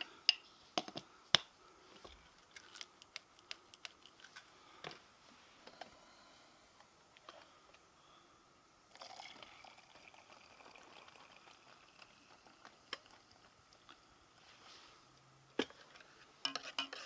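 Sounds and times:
hot water pouring: 8.9s - 13.6s
spoon stirring and clinking in mug: 16.4s - 17.0s.

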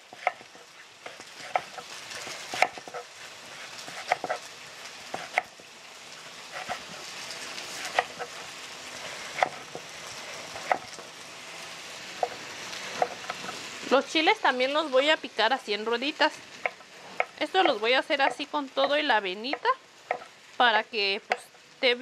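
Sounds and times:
knife slicing onion on wooden board: 0.0s - 11.1s, 12.1s - 13.6s, 16.6s - 20.3s, 21.2s - 21.6s
liver sizzling in oil: 0.0s - 22.0s.

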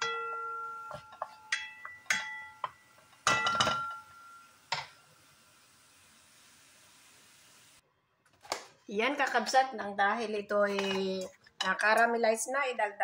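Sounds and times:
pan ringing: 0.0s - 4.6s.

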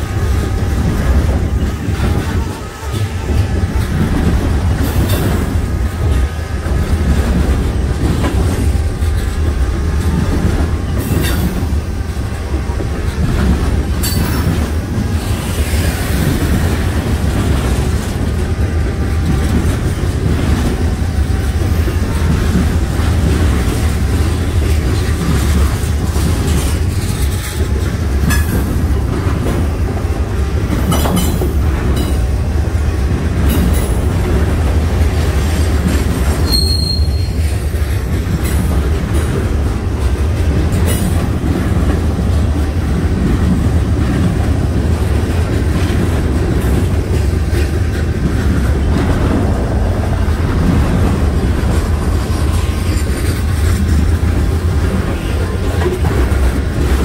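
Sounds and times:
freight train rumbling: 0.0s - 57.0s
high-pitched wheel squeal: 36.4s - 37.4s.

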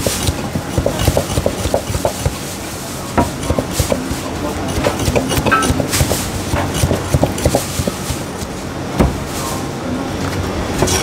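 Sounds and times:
cleaver chopping on wooden block: 0.1s - 2.4s.

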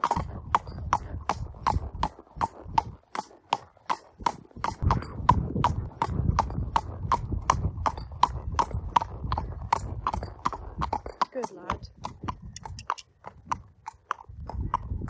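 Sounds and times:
wind rumble on microphone: 0.0s - 3.2s, 4.1s - 15.0s
horse hooves clopping on tarmac: 0.0s - 15.0s.

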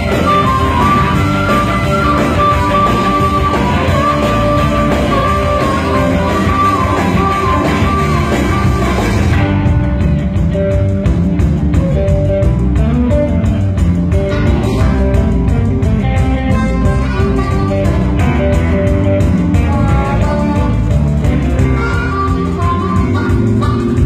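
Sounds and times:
blues band playing: 0.0s - 24.0s.

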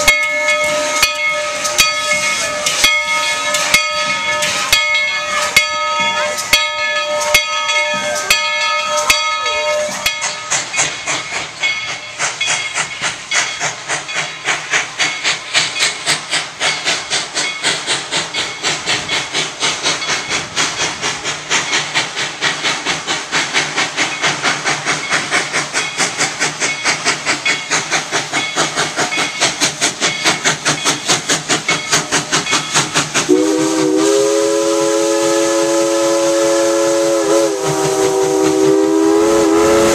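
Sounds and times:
locomotive bell ringing: 0.0s - 20.8s, 24.0s - 33.4s
steam exhaust chuffing: 0.0s - 39.9s
steam hiss: 0.0s - 39.9s
steam whistle chord: 33.3s - 39.9s.

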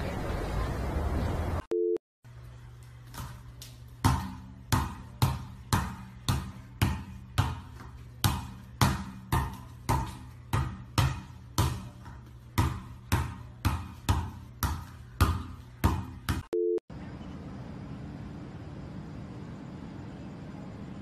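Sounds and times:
soccer ball thumps: 3.1s - 16.5s.

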